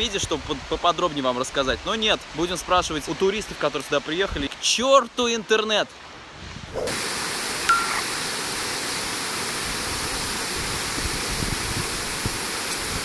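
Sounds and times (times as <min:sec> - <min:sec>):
waterfall rushing: 0:06.2 - 0:13.0
short high tone: 0:07.7 - 0:08.1.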